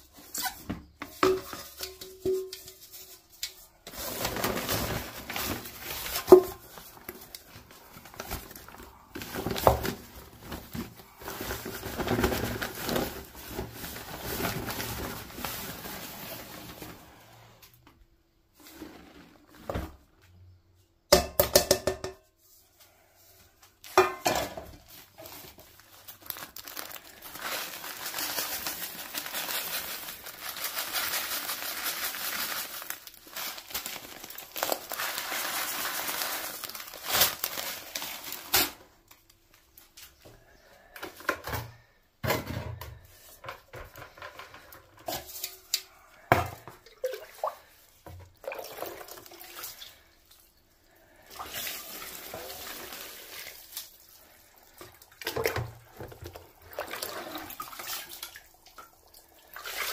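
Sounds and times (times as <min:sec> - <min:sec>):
metal bowl clanking on bucket: 0:01.1 - 0:02.8
water pouring into bucket: 0:46.8 - 0:50.3, 0:51.0 - 0:59.9.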